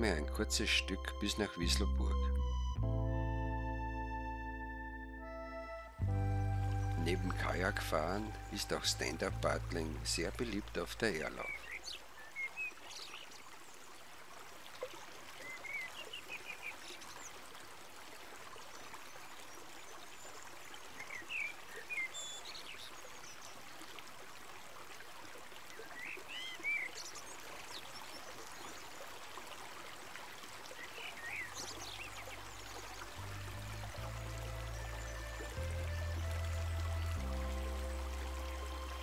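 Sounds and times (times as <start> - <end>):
river water flowing: 5.6 - 39.0
small birds chirping: 6.4 - 14.1, 15.3 - 17.5, 18.8 - 23.9, 25.6 - 29.2, 30.7 - 39.0.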